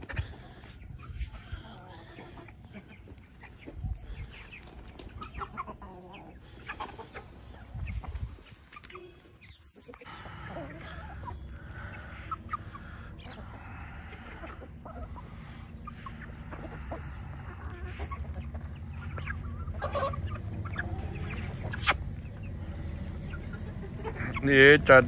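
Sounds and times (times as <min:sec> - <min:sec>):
chickens clucking softly: 0:00.0 - 0:25.0
low steady rumble: 0:10.1 - 0:25.0.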